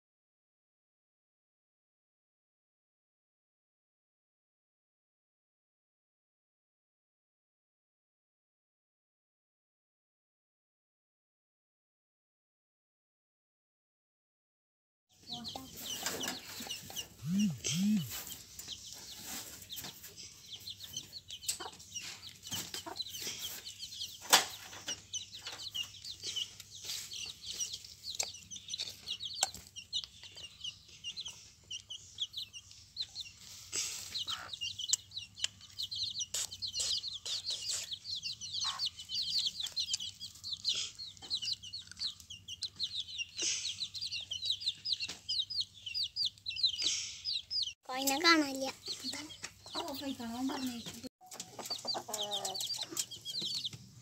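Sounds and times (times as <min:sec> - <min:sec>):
chicks peeping: 0:15.2 - 0:54.0
hen clucking: 0:15.3 - 0:53.9.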